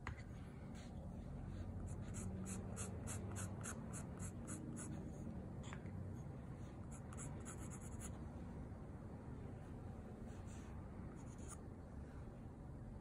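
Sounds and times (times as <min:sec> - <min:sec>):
pen scratching on paper: 0:01.9 - 0:05.0, 0:06.9 - 0:08.1.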